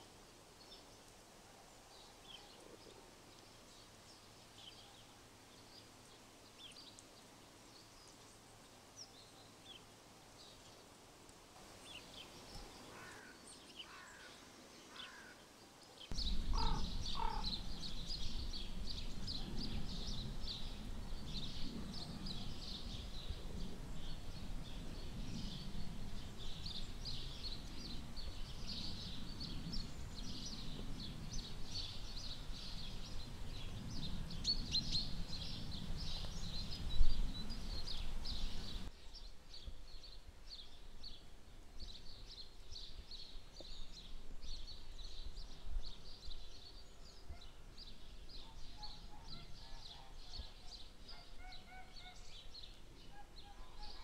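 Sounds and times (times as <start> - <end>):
small birds chirping: 0.0 - 10.9, 11.8 - 54.0
harsh low bird call: 16.1 - 23.1
low rumble: 16.1 - 38.9.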